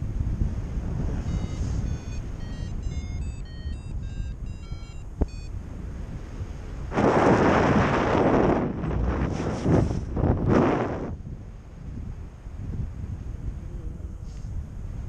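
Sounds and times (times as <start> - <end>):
wind rushing over microphone: 0.0 - 15.0
short electronic beeps: 1.2 - 5.6.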